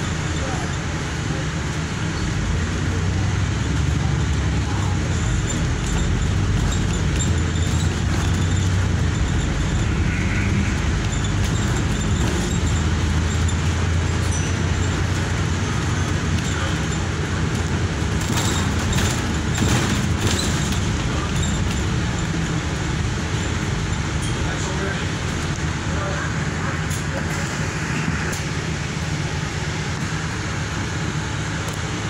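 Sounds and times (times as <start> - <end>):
bus engine drone: 0.0 - 32.0
tyre and road noise: 0.0 - 32.0.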